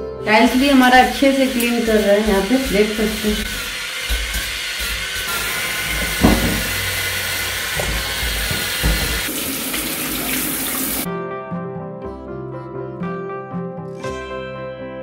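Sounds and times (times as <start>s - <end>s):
water spraying from shower head: 0.3s - 11.1s
electric spin scrubber whirring: 0.5s - 9.3s
background music with plucked strings: 11.1s - 15.0s.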